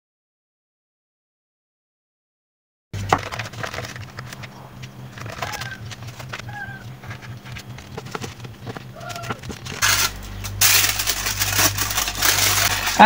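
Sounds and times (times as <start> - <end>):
baking paper crackling and rustling: 3.0 - 13.0
low steady hum: 3.0 - 13.0.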